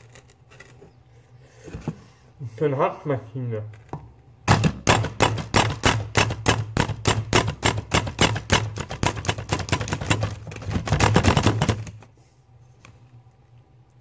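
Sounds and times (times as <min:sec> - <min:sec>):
food chopper clattering strokes: 0:04.9 - 0:11.9.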